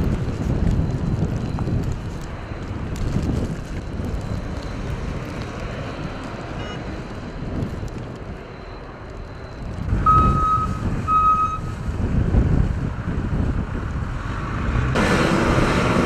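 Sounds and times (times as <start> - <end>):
wind gusting on microphone: 0.0 - 16.0
electronic beeps: 6.6 - 6.9, 8.5 - 11.7.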